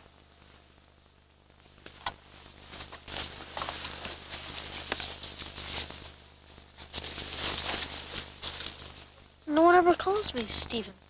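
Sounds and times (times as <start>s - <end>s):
footsteps running through dry leaves: 6.8s - 9.1s.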